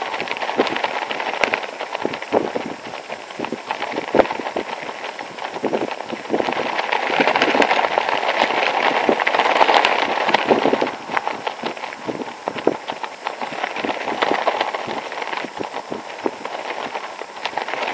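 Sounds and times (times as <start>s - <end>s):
jacket fabric flapping in wind: 0.0s - 17.9s.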